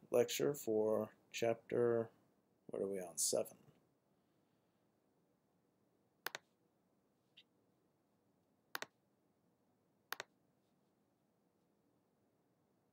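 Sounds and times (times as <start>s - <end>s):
computer mouse clicks: 6.2s - 6.5s, 8.7s - 9.0s, 10.1s - 10.4s.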